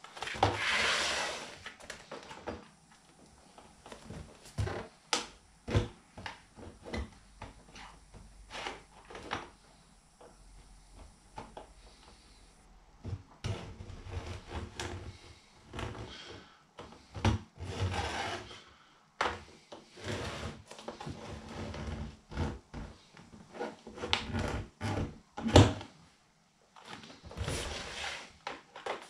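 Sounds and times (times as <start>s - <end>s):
scraping on plastic tub rim: 0.2s - 2.5s.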